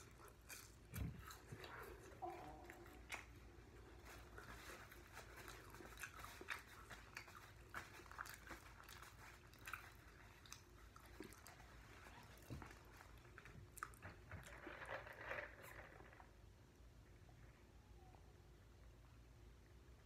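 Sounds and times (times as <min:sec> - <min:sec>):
chewing chicken wings: 0:00.0 - 0:14.4.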